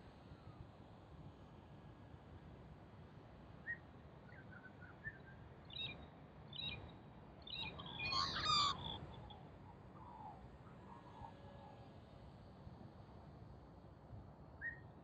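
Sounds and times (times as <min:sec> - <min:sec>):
magpies calling: 0:07.6 - 0:09.4.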